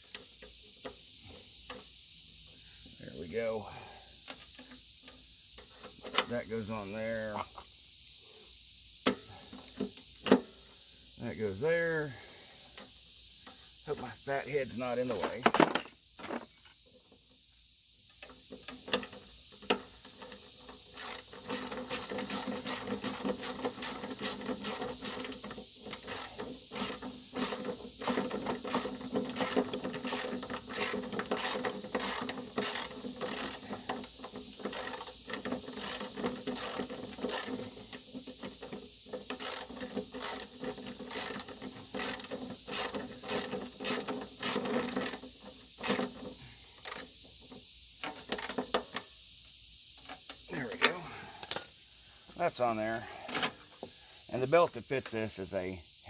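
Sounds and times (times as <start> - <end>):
ratchet wrench clicking: 18.2 - 46.2, 46.8 - 47.2.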